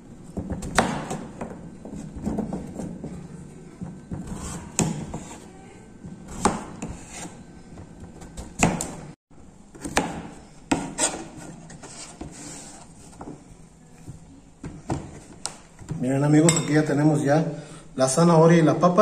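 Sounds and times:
knife chopping on plastic board: 0.3 - 3.1, 3.8 - 5.4, 6.3 - 9.0, 9.8 - 11.5.

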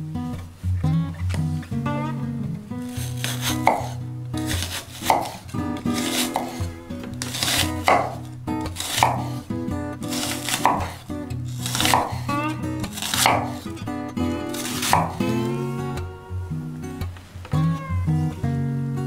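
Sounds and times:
background music: 1.8 - 19.0
knife slicing onion on wooden board: 2.8 - 15.4.

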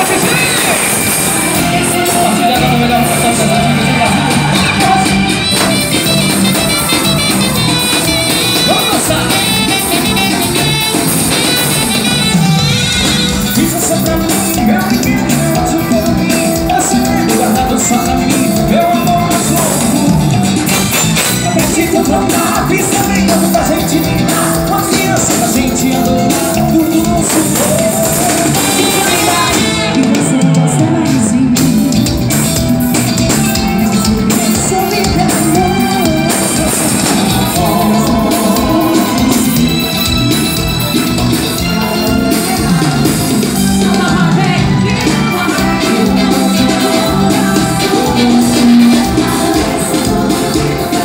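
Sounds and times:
drums with steady beat: 0.0 - 51.0
electric guitar: 0.0 - 51.0
keyboards: 0.0 - 51.0
person singing: 0.0 - 51.0.

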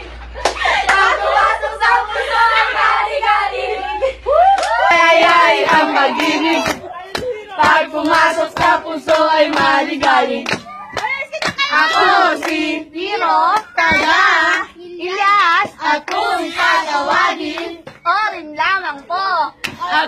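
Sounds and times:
voices singing a chant: 0.6 - 18.2, 19.6 - 20.0
sharp hand claps: 5.7 - 12.6.

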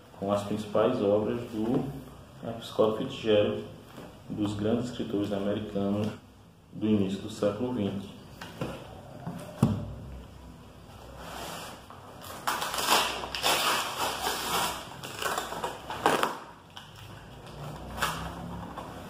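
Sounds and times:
packing tape crackling and peeling: 12.2 - 18.6.

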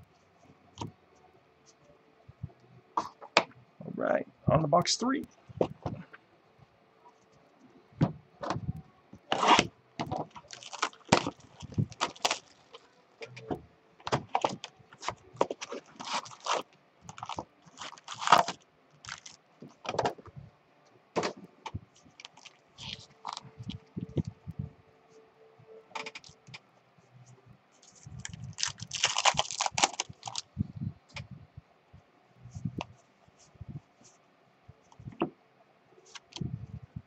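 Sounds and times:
cardboard and wrappers rustling: 8.4 - 20.3, 21.2 - 24.4, 27.8 - 30.5.

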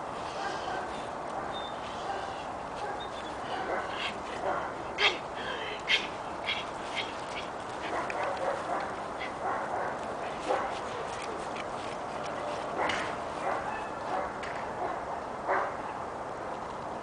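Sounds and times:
puppy vocalising: 5.8 - 8.0.

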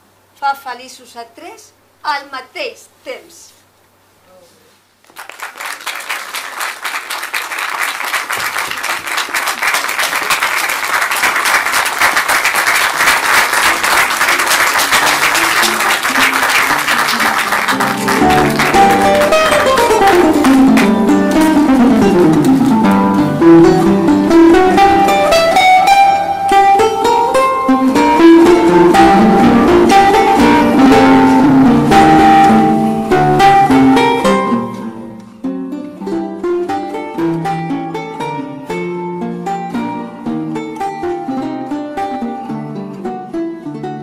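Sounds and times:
audience applause: 5.1 - 21.0
guitar music: 12.6 - 44.0.

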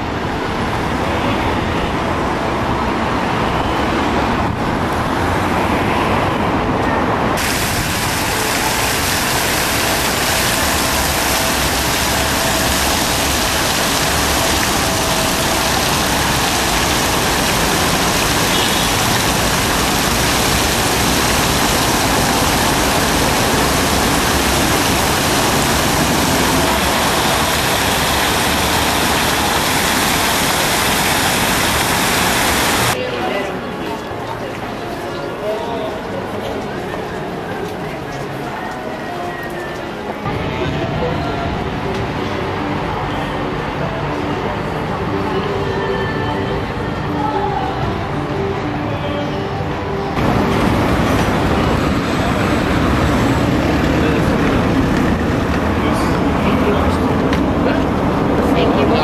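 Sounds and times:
distant traffic: 0.0 - 45.3, 50.0 - 59.0
fountain water splashing: 7.4 - 33.0, 50.1 - 59.0.

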